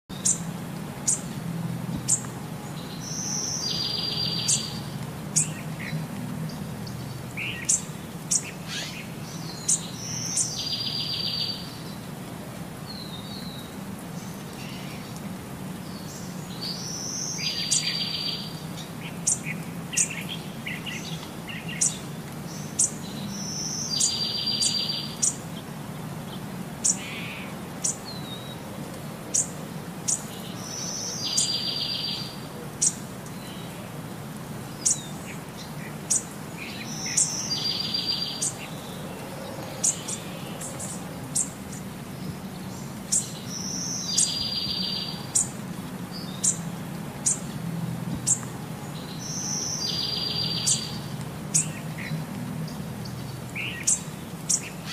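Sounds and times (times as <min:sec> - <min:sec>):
small birds chirping: 0:00.1 - 0:12.1, 0:12.9 - 0:34.0, 0:34.6 - 0:54.9
trilling bird song: 0:02.1 - 0:05.6, 0:06.9 - 0:12.0, 0:34.8 - 0:45.5, 0:49.0 - 0:52.1.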